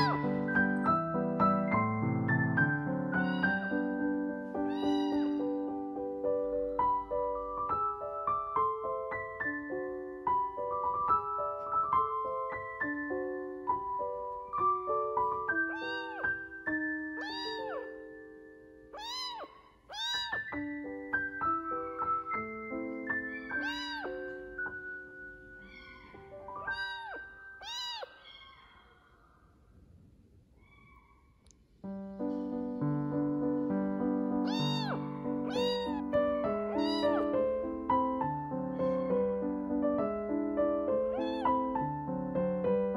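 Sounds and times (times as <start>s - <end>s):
kitten mewing: 0.0s - 0.4s, 3.2s - 3.8s, 4.7s - 5.6s, 15.6s - 16.5s, 17.2s - 18.1s, 18.9s - 20.6s, 23.3s - 24.2s, 25.6s - 29.0s, 34.5s - 36.1s, 36.7s - 37.4s, 41.1s - 41.8s
piano music: 0.0s - 28.2s, 31.8s - 42.9s.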